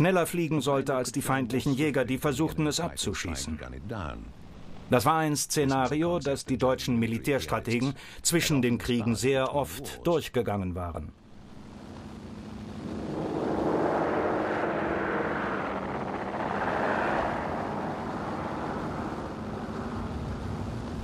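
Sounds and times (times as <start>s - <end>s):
propeller plane engines: 11.2s - 21.0s.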